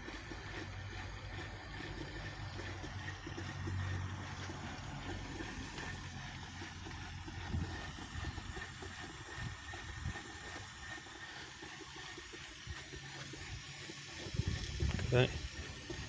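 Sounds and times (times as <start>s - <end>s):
low running rumble: 0.0s - 15.9s
steam hissing: 11.2s - 16.0s.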